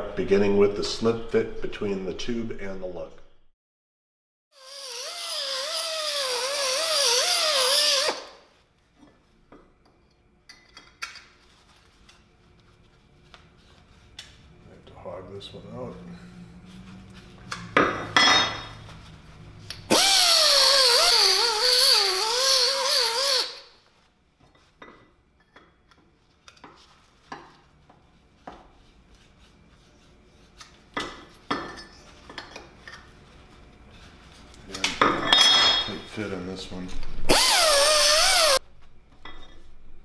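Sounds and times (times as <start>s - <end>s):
pneumatic die grinder: 4.6s - 8.3s, 19.9s - 23.6s, 37.3s - 38.6s
loud strokes: 37.3s - 38.6s.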